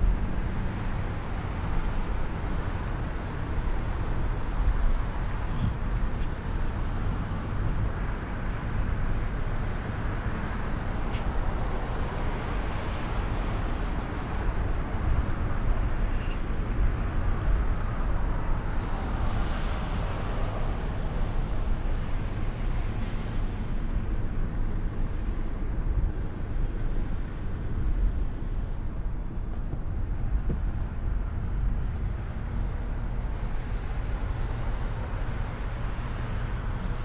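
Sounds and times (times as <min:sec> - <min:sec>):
car engine and tyre rumble: 0:00.0 - 0:37.0.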